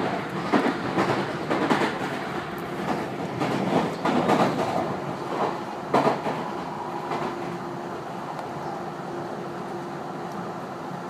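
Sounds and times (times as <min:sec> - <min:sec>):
wheels clacking over rail joints: 0:00.0 - 0:06.5
train rumble inside car: 0:00.0 - 0:11.0.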